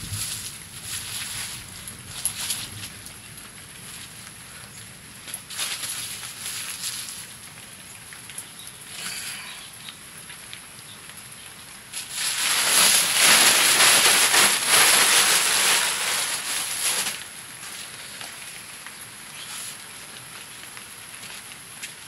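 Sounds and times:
fire crackling and popping: 0.0 - 22.0
loud hissing rush: 11.9 - 18.3.

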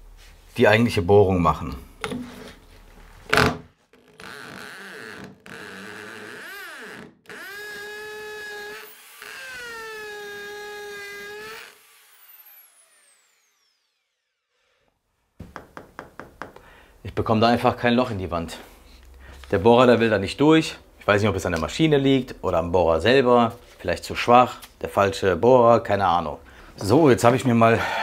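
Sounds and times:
drill motor whine: 4.0 - 14.5.

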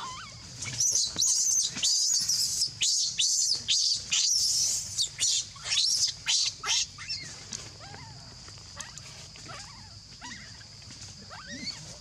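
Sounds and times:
baby monkey squealing: 0.0 - 7.3, 11.3 - 11.9.

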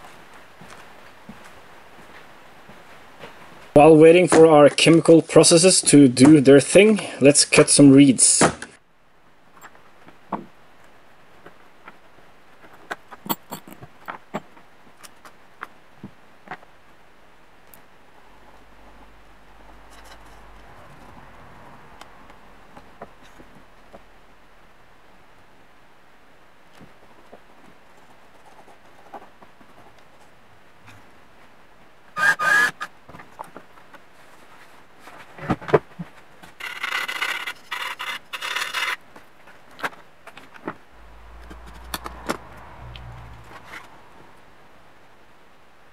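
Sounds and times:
small drill whirring: 32.2 - 32.9, 36.6 - 39.0.

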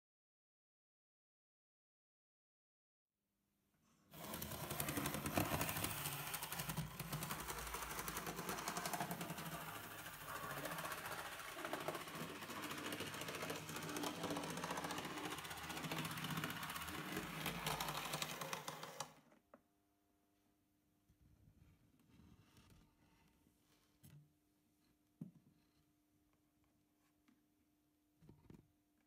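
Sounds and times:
model trains clicking rattle: 4.2 - 19.2.

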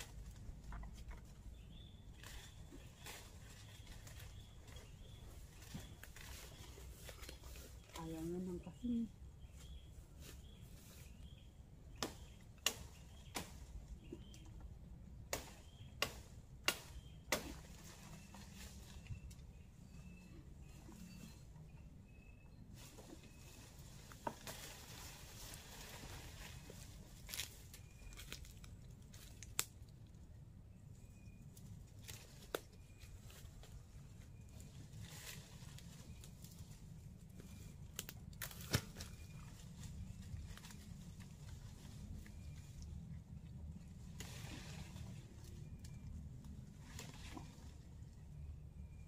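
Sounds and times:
leafy branches rustling: 0.0 - 14.4, 15.1 - 21.5, 22.6 - 29.9, 31.4 - 48.4
branches snapping: 11.9 - 14.6, 15.2 - 19.3, 25.8 - 29.9, 32.0 - 33.7, 37.4 - 41.8.

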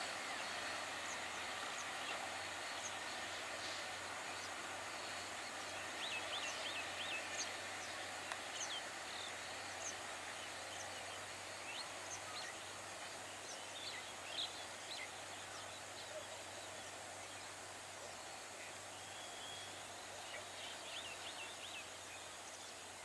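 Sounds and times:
birds chirping: 0.0 - 17.6
faint outdoor hiss: 0.0 - 23.0.

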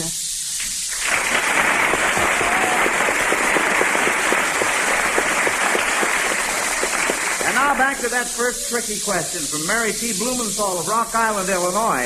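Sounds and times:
studio audience applauding: 0.9 - 8.5.

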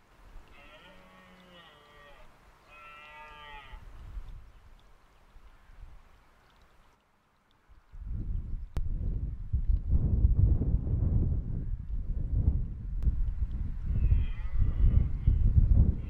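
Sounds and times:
deer stag roaring: 0.5 - 3.8.

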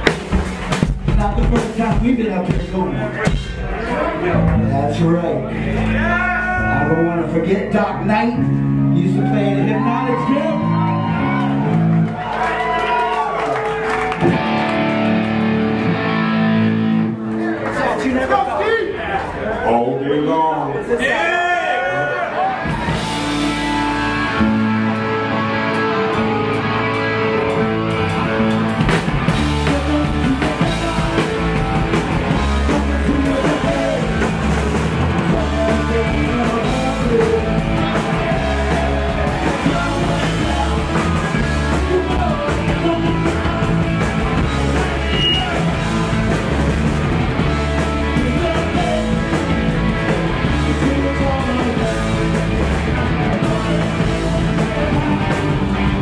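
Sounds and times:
punk rock band playing live: 0.0 - 17.5, 22.4 - 56.0
person singing: 29.3 - 46.7, 47.8 - 56.0.

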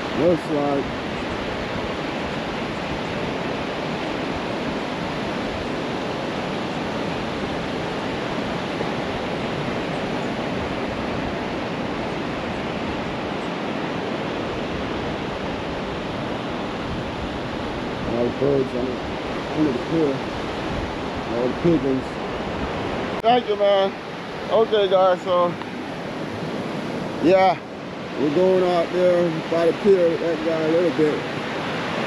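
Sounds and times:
ocean waves breaking: 0.0 - 32.0.

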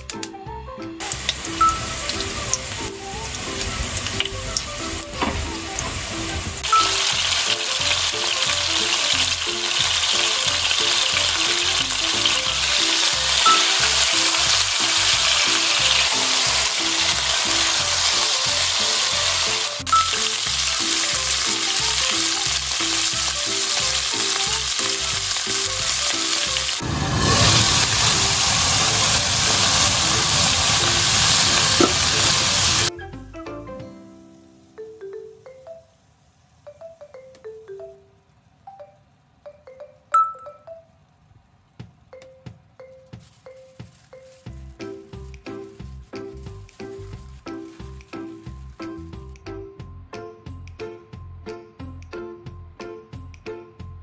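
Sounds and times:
oil sizzling in a frying pan: 1.0 - 32.9.

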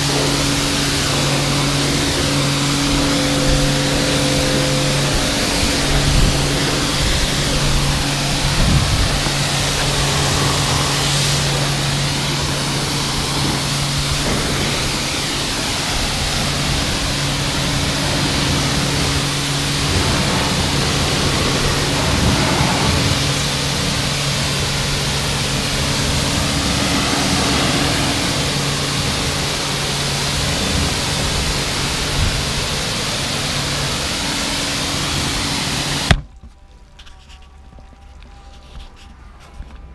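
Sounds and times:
pressure washer water spray: 0.0 - 36.2
pump motor hum: 0.0 - 38.6.

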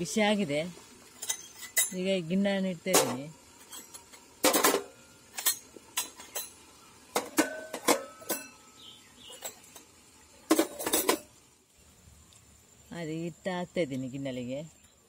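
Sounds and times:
metal cups clinking: 1.2 - 2.0, 3.0 - 8.7, 10.5 - 11.3.

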